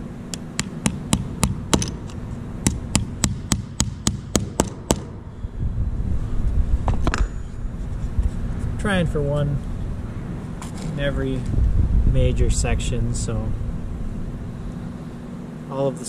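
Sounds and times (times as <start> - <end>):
small hammer tapping nail: 0.3 - 5.1.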